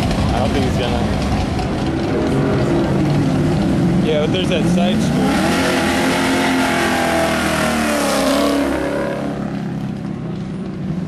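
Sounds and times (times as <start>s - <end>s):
car engine revving past: 3.8s - 10.0s.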